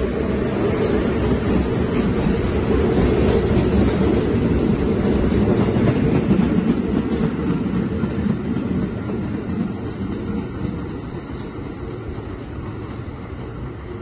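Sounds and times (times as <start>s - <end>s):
subway train rumble: 0.0s - 14.0s.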